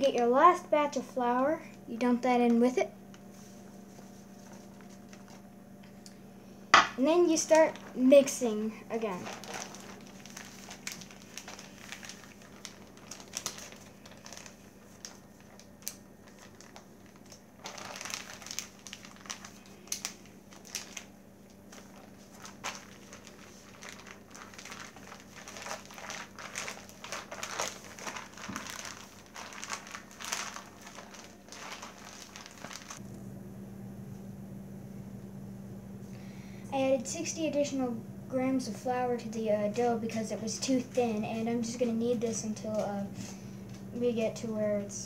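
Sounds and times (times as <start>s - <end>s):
plastic bag crinkling: 3.4s - 5.5s, 7.0s - 33.0s.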